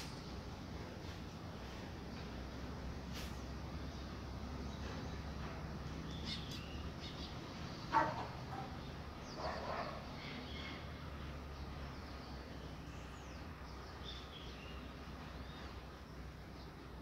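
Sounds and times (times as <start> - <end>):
low background hum: 0.0 - 17.0
faint high bird chirps: 6.0 - 11.0.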